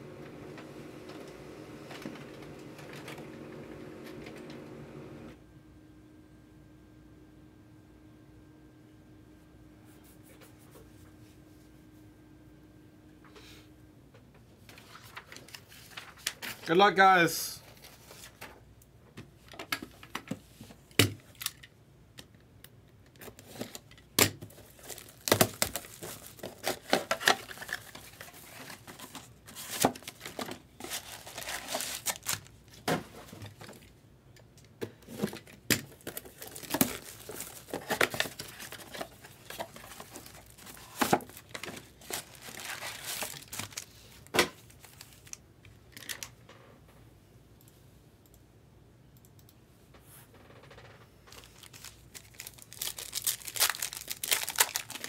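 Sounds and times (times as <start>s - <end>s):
wrapping crinkling and tearing: 23.2s - 32.8s, 35.9s - 45.4s, 51.3s - 55.0s.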